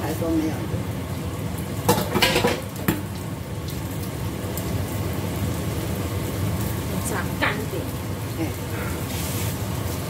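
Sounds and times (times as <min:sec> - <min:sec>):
egg frying in a wok: 0:00.0 - 0:10.0
gas burner low rumble: 0:00.0 - 0:10.0
metal cup clattering on wok: 0:01.9 - 0:03.0.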